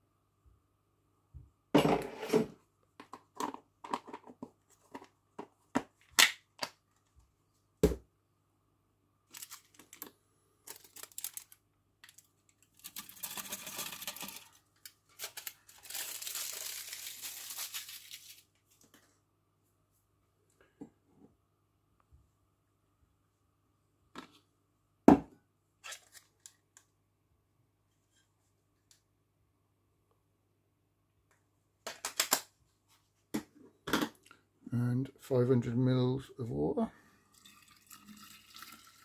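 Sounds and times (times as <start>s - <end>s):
plastic bag and foil crinkling: 9.3s - 18.6s.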